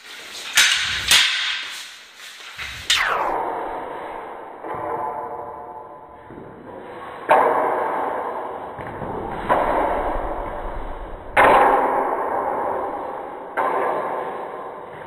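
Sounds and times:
staffs clashing with ringing echo: 0.5 - 2.0.

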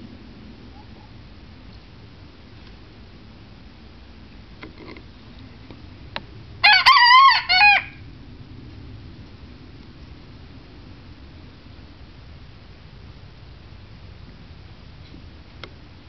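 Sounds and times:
young rooster crowing: 6.6 - 8.1.

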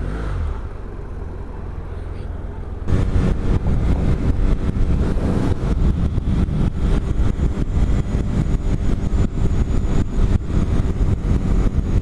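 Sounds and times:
motorcycle engine running: 2.6 - 12.0
wind rushing over microphone: 2.8 - 12.0.

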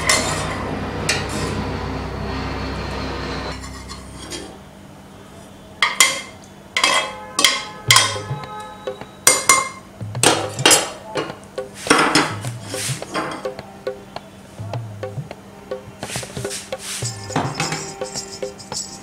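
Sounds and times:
metal ladle scraping a pot: 3.5 - 4.6, 6.1 - 8.5.

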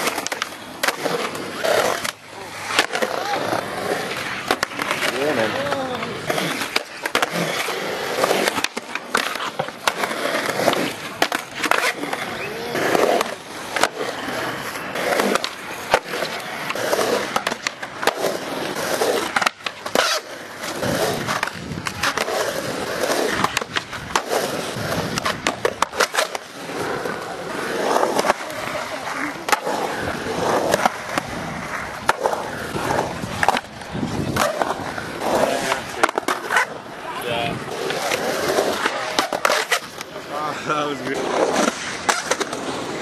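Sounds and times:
skateboard slaps and clacks: 0.0 - 40.3, 41.1 - 43.0
skateboards rolling on concrete: 0.0 - 43.0
people talking: 2.3 - 4.0, 4.8 - 6.5, 12.0 - 13.2, 28.2 - 30.6, 35.2 - 36.0, 36.9 - 37.9, 40.0 - 41.6.

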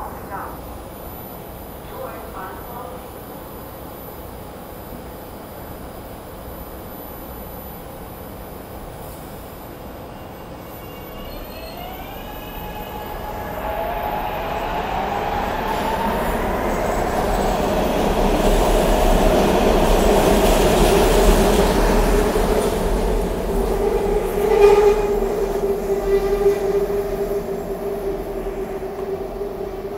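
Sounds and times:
train wheel squeal: 10.0 - 17.1, 23.7 - 29.9
train wheels rumbling on track: 12.6 - 29.9.

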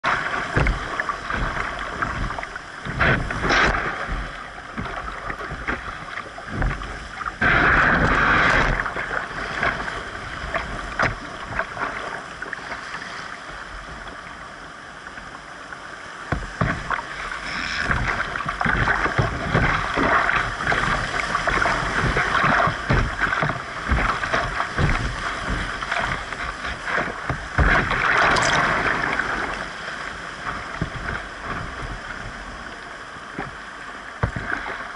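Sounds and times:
water knocking on hull: 0.0 - 12.5, 16.3 - 34.9
water splashing against boat: 0.0 - 34.9
whitewater rapids rushing: 16.9 - 33.3.

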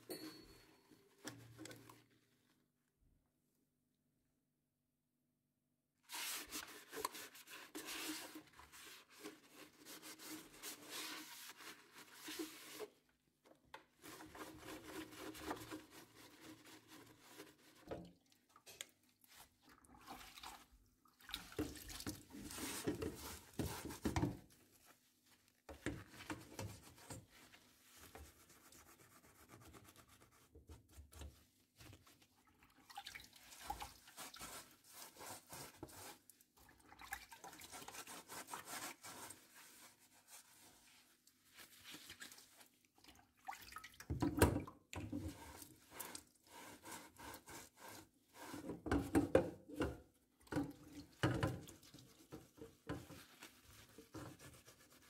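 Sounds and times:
cloth wiping inside appliance: 6.1 - 13.0, 37.8 - 42.7, 51.2 - 55.0
sponge scrubbing wet basket: 6.1 - 13.0, 14.0 - 18.2, 19.2 - 43.9, 45.2 - 55.0.

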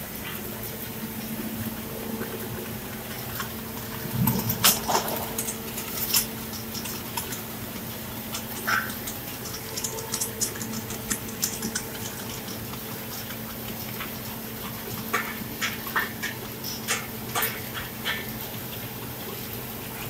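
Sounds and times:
machine humming: 0.0 - 14.6
sharp clicks and ticks: 4.1 - 18.2.

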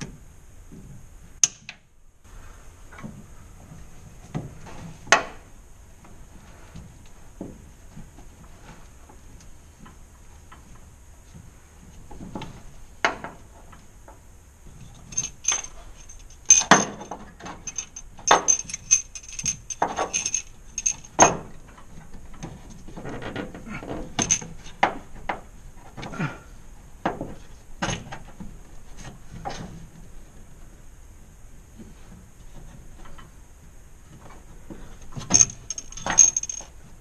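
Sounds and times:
metallic clinks of hand tools: 15.1 - 21.4, 24.2 - 24.5, 35.3 - 36.7.

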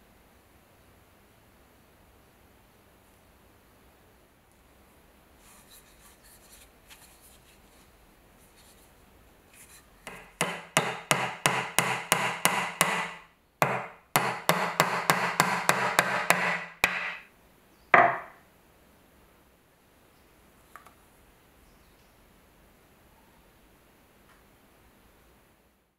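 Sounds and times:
hammer knocking on wooden block: 10.0 - 17.3, 18.0 - 18.4
hammer driving nails into wood: 10.1 - 17.3, 18.0 - 18.3.

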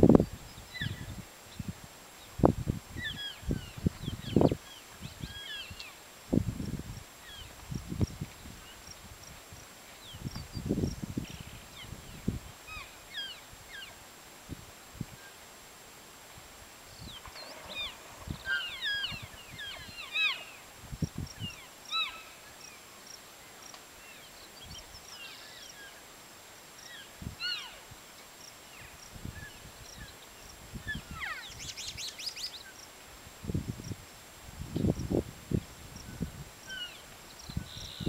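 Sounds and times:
elk chirping and mewing: 17.2 - 20.6.

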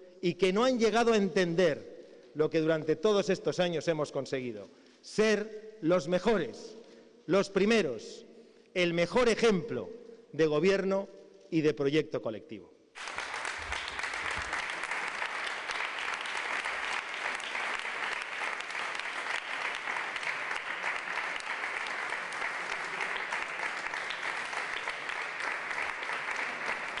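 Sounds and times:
audience applauding: 13.0 - 27.0.

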